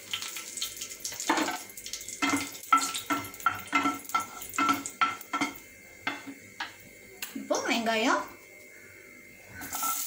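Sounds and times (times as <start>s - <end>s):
spices sizzling in hot oil: 0.0s - 7.0s, 9.5s - 10.0s
spatula scraping and tapping pan: 2.2s - 6.8s.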